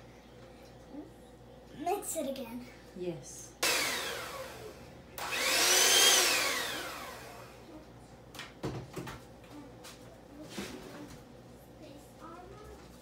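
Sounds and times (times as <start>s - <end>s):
electric hand mixer whining: 3.6s - 7.6s.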